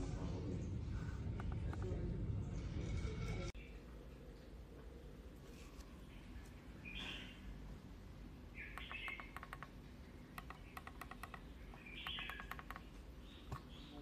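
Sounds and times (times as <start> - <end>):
small bird chirping: 6.1 - 7.5, 8.5 - 14.0
mouse scroll wheel clicking: 8.8 - 13.0.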